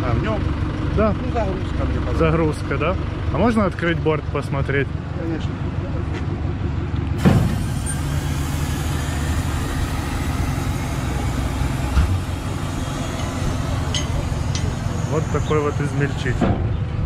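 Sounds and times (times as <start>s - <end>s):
tractor engine running: 0.0s - 17.0s
sharp metal clunk: 13.1s - 14.8s.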